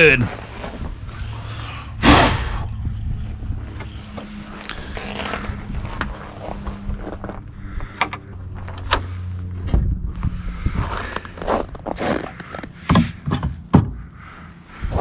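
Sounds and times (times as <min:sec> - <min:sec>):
steady low hum: 0:00.0 - 0:15.0
footsteps on snow and gravel: 0:03.3 - 0:12.9.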